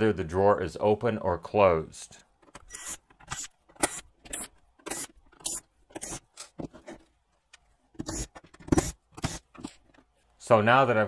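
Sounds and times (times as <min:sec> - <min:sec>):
screwdriver turning screws: 0:02.4 - 0:07.1, 0:07.9 - 0:10.1.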